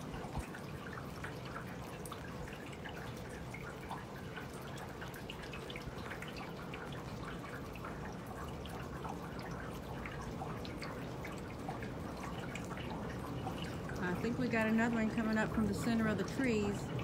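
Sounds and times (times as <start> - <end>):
water dripping from gutter: 0.0 - 17.0.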